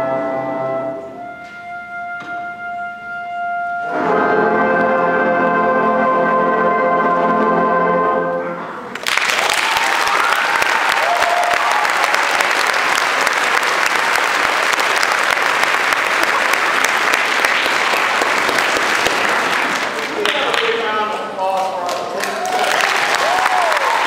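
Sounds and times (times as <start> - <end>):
audience applause: 8.9 - 24.0.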